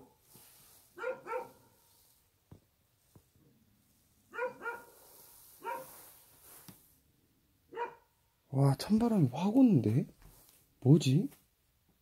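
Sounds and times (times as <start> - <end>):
dog barking: 1.0 - 1.7, 4.3 - 5.0, 5.6 - 5.9, 7.7 - 8.1.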